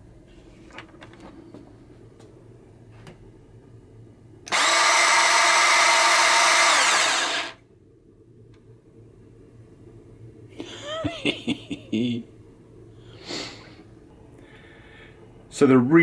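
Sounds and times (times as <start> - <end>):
bandsaw motor and blade whine: 4.5 - 7.6.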